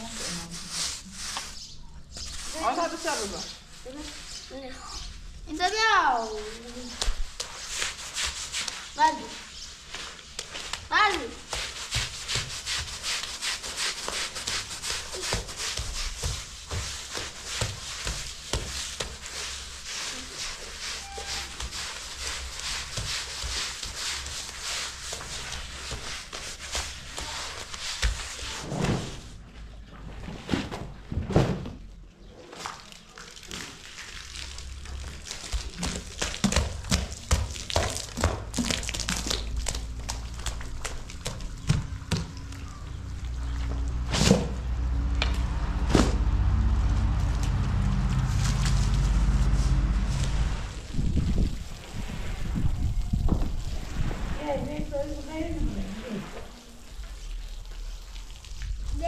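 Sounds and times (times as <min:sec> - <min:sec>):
rapid scraping strokes: 0:00.0 - 0:05.2.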